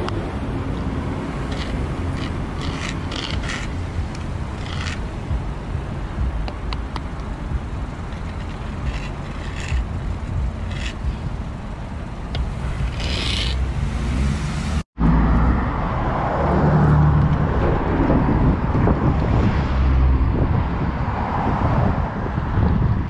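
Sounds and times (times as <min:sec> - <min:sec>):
marker scraping on pavement: 0:01.2 - 0:05.5, 0:06.4 - 0:11.5, 0:12.3 - 0:14.6.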